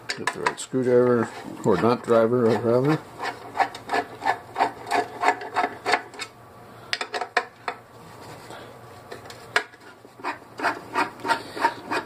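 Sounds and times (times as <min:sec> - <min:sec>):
rubbing strokes: 0:09.8 - 0:12.0.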